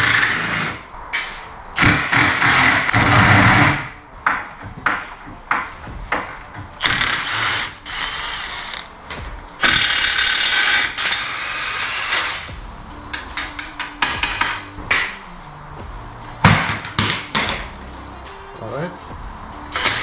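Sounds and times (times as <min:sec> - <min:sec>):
cordless impact wrench bursts: 0:06.8 - 0:08.9, 0:09.6 - 0:12.5.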